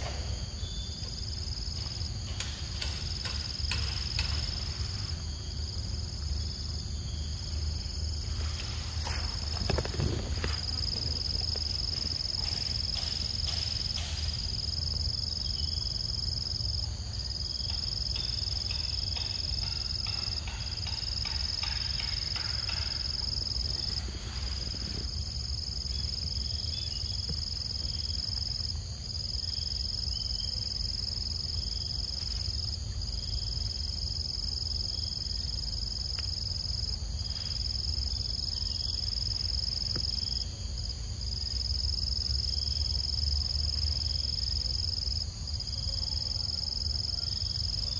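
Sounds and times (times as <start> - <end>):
insects buzzing: 0.0 - 47.9
faint clicks and rustles: 8.3 - 14.2.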